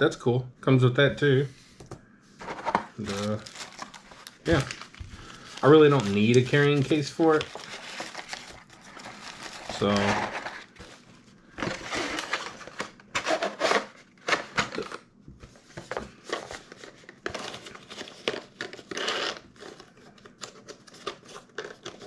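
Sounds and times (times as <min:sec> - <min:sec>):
cardboard box rustling and scraping: 0:02.4 - 0:04.9, 0:06.8 - 0:14.0.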